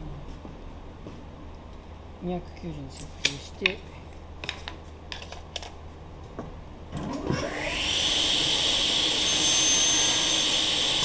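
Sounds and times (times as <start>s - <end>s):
table saw motor running: 7.1s - 11.0s.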